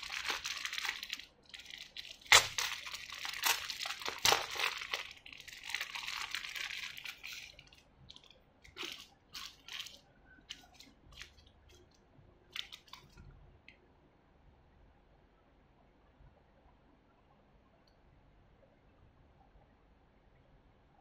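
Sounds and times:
plastic packaging crinkling: 0:00.0 - 0:13.2.

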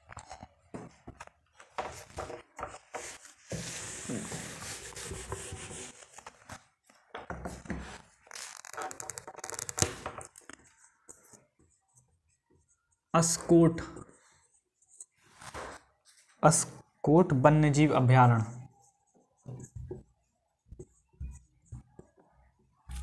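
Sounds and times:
handling rubbing and rustling: 0:00.0 - 0:13.6.

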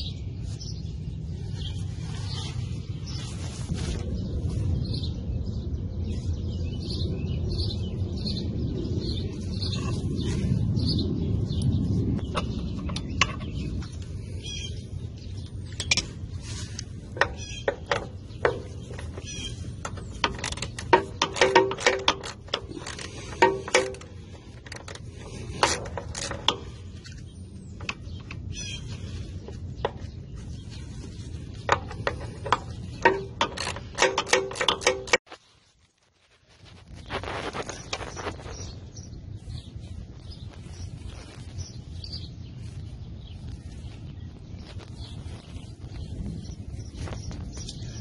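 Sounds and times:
hand ratchet clicking: 0:19.8 - 0:25.0, 0:31.7 - 0:35.2.

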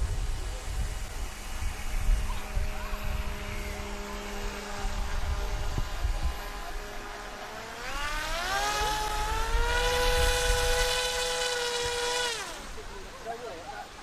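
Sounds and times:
rising pitched tone: 0:01.5 - 0:13.2.

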